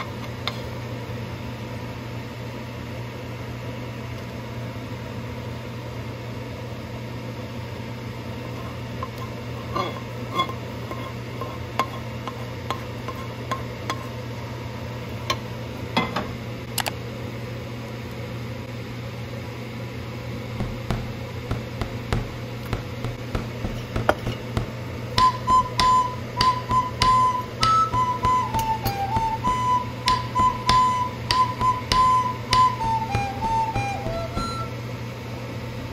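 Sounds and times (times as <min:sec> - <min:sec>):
steady low hum: 0:20.1 - 0:35.3
metal pot knocking on counter: 0:20.6 - 0:34.7
flute-like background music: 0:25.0 - 0:34.8.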